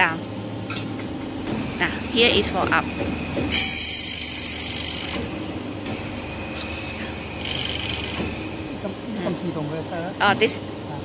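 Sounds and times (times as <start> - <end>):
sharpening machine humming: 2.9 - 9.2.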